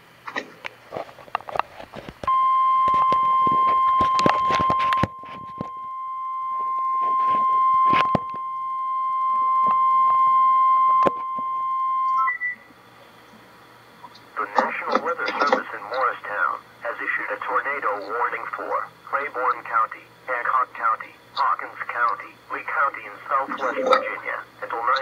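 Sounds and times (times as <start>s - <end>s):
clicks and crackles: 0.3s - 3.3s, 3.9s - 5.8s
steady high alarm beep: 2.3s - 12.6s.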